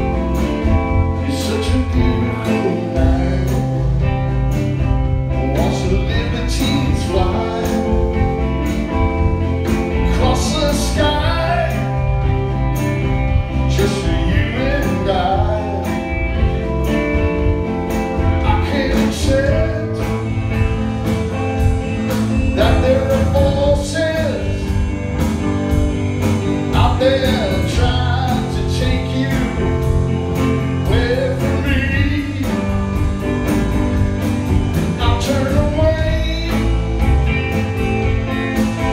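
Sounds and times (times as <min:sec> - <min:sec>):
bass guitar: 0:00.0 - 0:38.9
drums: 0:00.0 - 0:38.9
electric guitar: 0:00.0 - 0:38.9
man singing lead vocal: 0:00.8 - 0:04.5, 0:05.3 - 0:08.5, 0:10.0 - 0:12.4, 0:13.6 - 0:17.1, 0:18.2 - 0:20.5, 0:22.4 - 0:24.9, 0:26.6 - 0:33.0, 0:34.6 - 0:37.2.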